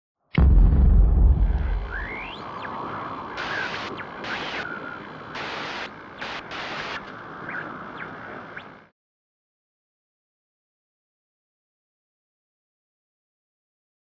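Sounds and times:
deep boom rumble: 0:00.4 - 0:02.4
glitchy noise bursts: 0:00.4 - 0:08.9
static hiss: 0:01.7 - 0:08.9
whistling sweeps: 0:01.8 - 0:02.8.

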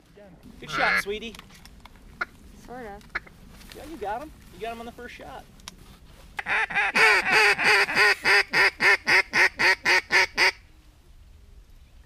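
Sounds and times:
duck call quacks: 0:00.7 - 0:01.1, 0:06.4 - 0:10.6.

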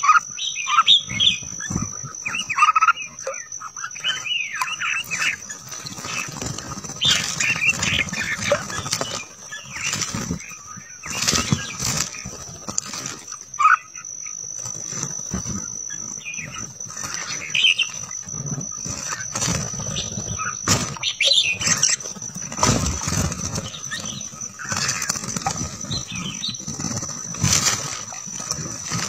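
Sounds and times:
birds chirping: 0:00.0 - 0:29.0
wing flaps: 0:00.8 - 0:29.0.

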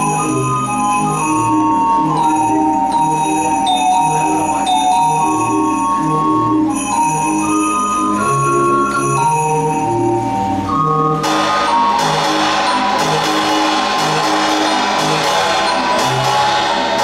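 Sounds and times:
tuned bells and pipes melody: 0:00.0 - 0:17.0
drum strikes: 0:10.8 - 0:17.0
cymbal crash: 0:11.2 - 0:17.0.

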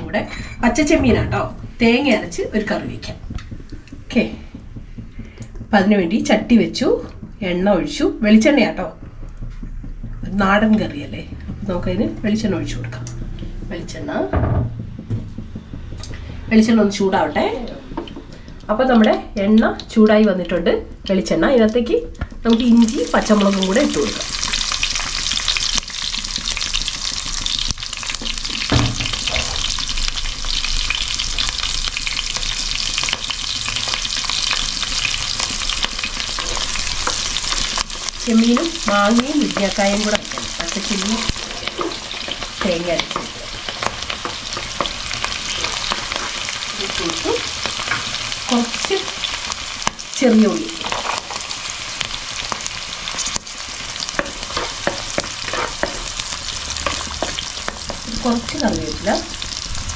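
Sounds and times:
chillies sizzling in hot oil: 0:21.4 - 0:59.9
wooden spatula stirring: 0:32.2 - 0:50.0, 0:50.9 - 0:59.7.

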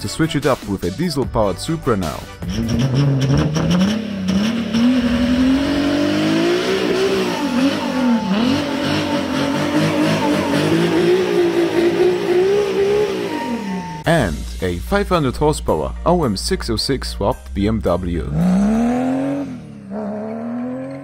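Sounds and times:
engine revving hard: 0:02.4 - 0:14.0, 0:18.2 - 0:21.0
tyres spinning: 0:02.5 - 0:14.0.

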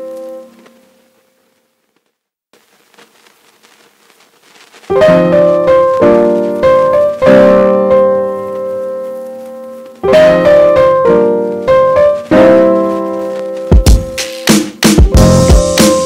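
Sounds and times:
piano chords ringing: 0:04.9 - 0:16.0.

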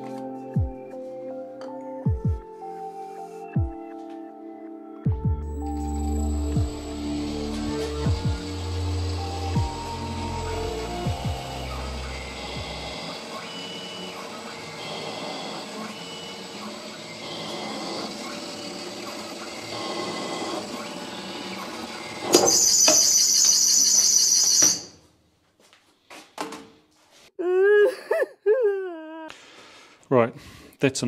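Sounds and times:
wavering wailing sound: 0:05.4 - 0:24.9
lathe cutting metal: 0:05.5 - 0:24.9
loud high-pitched screech: 0:05.8 - 0:24.9
faint squeal: 0:21.4 - 0:24.9.

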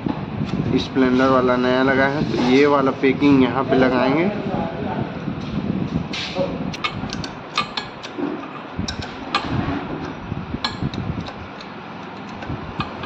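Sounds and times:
low handling noise: 0:00.0 - 0:13.0.

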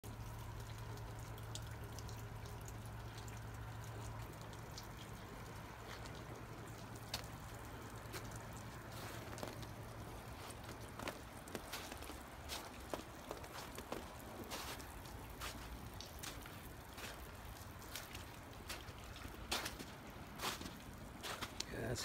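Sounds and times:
water dripping: 0:00.0 - 0:22.0.

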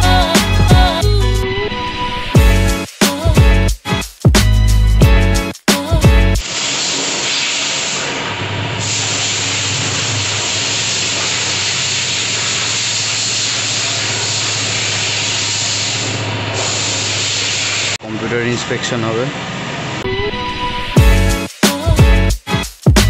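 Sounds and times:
loud rushing hiss: 0:06.4 - 0:18.0.

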